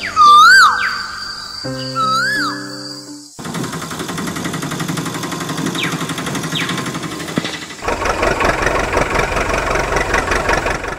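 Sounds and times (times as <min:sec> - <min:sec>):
short falling whistles: 0:01.8 - 0:03.2
toy tractor engine idling: 0:03.4 - 0:10.9.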